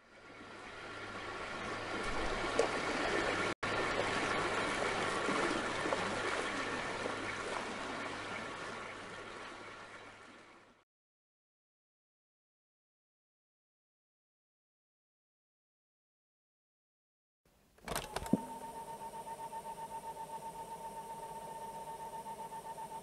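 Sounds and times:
water rushing and trickling: 0.0 - 10.8
low steady hum: 17.5 - 23.0.

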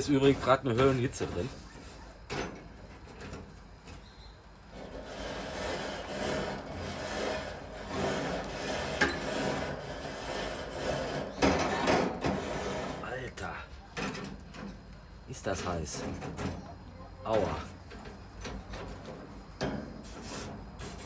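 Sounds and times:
wire brush scrubbing grill grates: 0.0 - 2.6, 4.7 - 13.4, 17.4 - 21.0.

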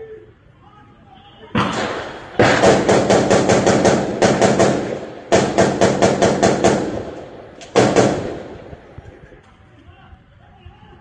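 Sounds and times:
automatic gunfire bursts: 1.6 - 9.0.

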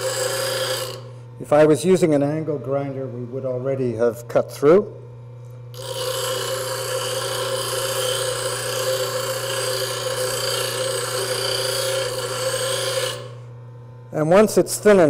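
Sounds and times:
grinder wheel grinding steel: 0.0 - 1.2, 5.7 - 13.5
grinder motor hum: 0.0 - 15.0.

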